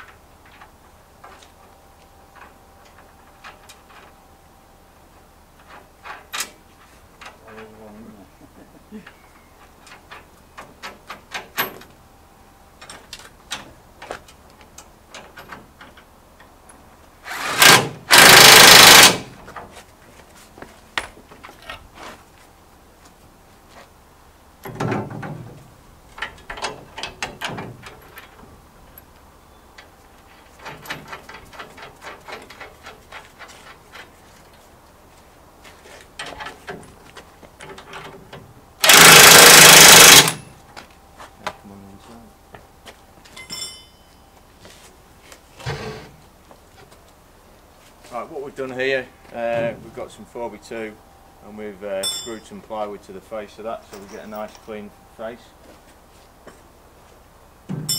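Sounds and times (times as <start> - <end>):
cordless drill driving bolts: 17.2 - 19.4, 38.8 - 40.5
metallic clinks and taps: 43.2 - 44.3.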